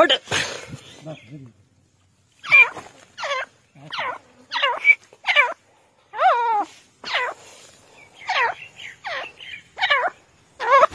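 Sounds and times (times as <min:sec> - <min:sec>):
francolin harsh calls: 0:02.4 - 0:10.9.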